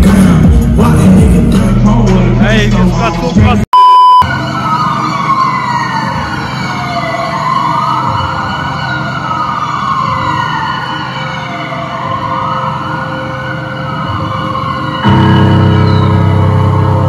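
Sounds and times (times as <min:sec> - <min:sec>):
wailing siren: 0:04.2 - 0:17.0.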